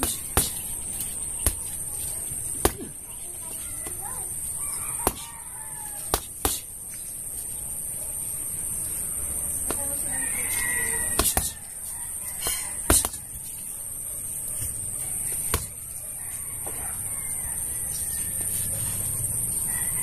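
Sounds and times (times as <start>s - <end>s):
high insect drone: 0.0s - 20.0s
gloves thudding on punching bag: 1.4s - 1.8s, 5.0s - 5.3s, 6.1s - 6.6s, 11.1s - 11.6s, 12.4s - 13.2s, 15.5s - 15.8s.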